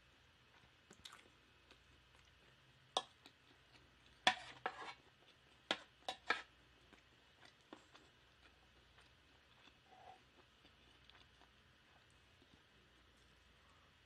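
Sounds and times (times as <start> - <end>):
wooden spoon scraping metal tray: 4.2 - 5.0.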